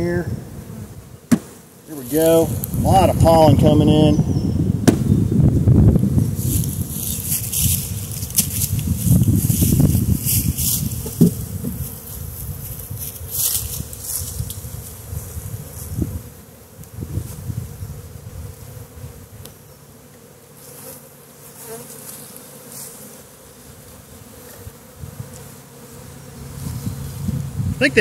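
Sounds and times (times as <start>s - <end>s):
wind buffeting microphone: 0.0s - 1.3s, 2.2s - 19.4s, 26.4s - 28.0s
honeybees buzzing: 0.0s - 28.0s.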